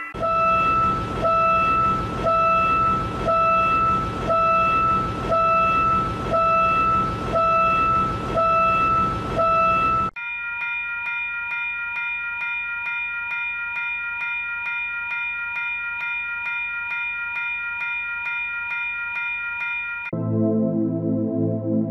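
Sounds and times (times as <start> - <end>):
level crossing warning bell: 0.0 - 20.1.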